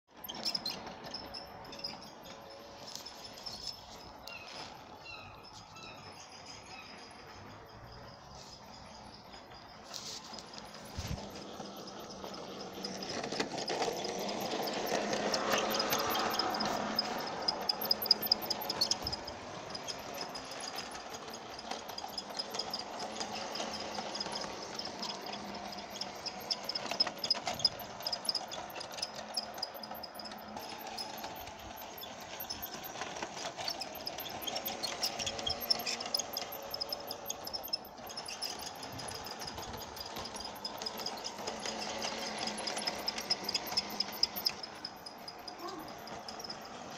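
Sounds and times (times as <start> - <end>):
toy train motor whirring: 0.1 - 46.9
wheels clicking on rails: 0.1 - 46.9.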